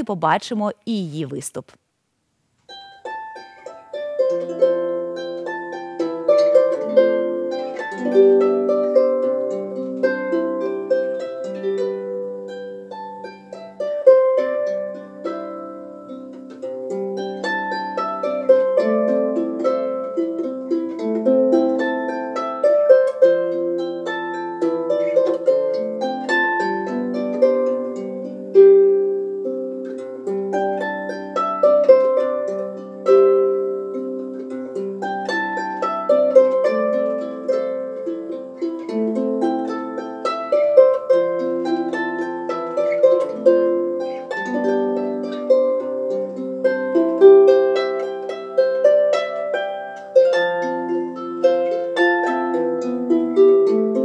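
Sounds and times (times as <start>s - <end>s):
harp playing: 2.7s - 54.0s.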